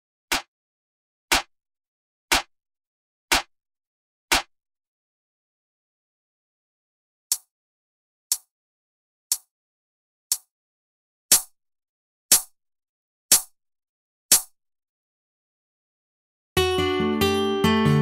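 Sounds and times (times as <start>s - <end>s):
hi-hat hits: 11.3s - 11.5s, 12.3s - 12.5s.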